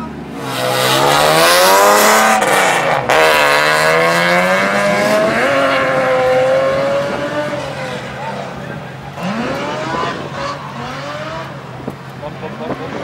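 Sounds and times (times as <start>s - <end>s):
car engine revving: 0.0s - 13.0s
sliding tyre noise: 0.0s - 13.0s.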